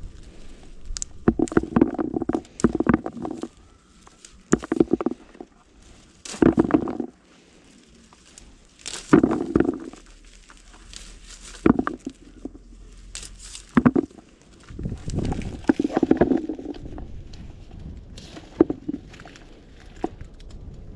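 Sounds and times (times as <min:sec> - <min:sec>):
branches and leaves rustling: 0:00.0 - 0:20.9.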